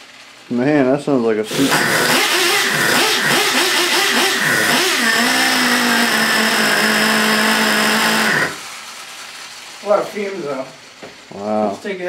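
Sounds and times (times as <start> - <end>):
small nitro engine revving: 1.5 - 8.6.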